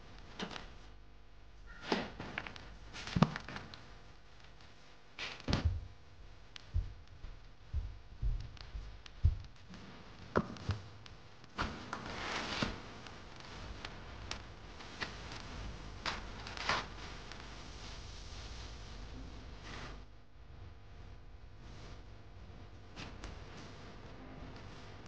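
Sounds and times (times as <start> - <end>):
soft thumps and taps: 6.6 - 9.6.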